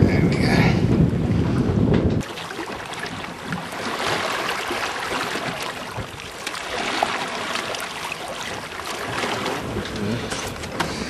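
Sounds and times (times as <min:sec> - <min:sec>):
water splashing: 0:02.2 - 0:11.0.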